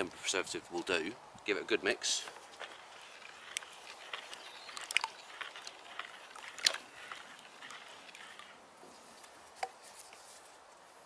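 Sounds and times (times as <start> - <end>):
liquid sloshing in a bucket: 2.3 - 8.6.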